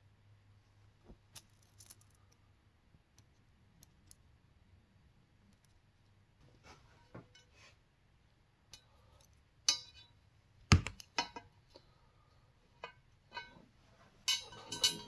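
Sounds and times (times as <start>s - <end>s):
light metallic clinks: 14.2s - 15.0s
rattle of clinks: 14.2s - 15.0s.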